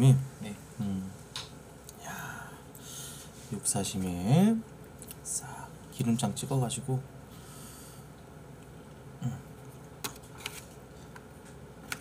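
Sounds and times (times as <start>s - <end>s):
person humming while eating: 0.8s - 1.2s, 9.2s - 9.6s.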